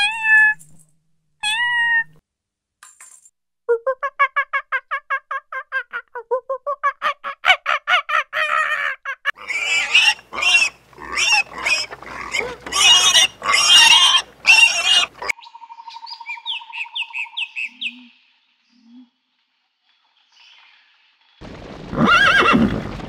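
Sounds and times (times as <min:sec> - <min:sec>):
piglets squealing: 0:06.9 - 0:15.3.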